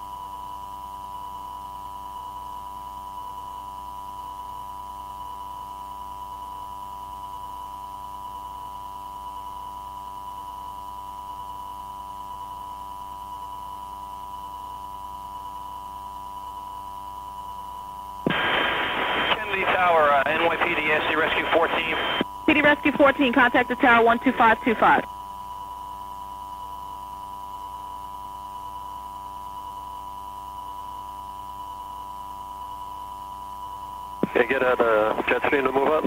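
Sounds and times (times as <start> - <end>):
faint hum: 0.0 - 36.0
radio transmission: 18.3 - 25.1, 34.2 - 36.0.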